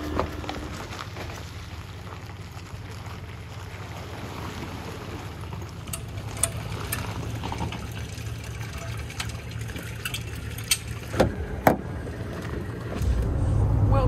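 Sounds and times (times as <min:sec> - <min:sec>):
water sloshing around hull: 0:00.0 - 0:13.4
steady low rumble: 0:00.0 - 0:14.0
metallic clicks of winch: 0:05.8 - 0:07.8, 0:08.8 - 0:11.2.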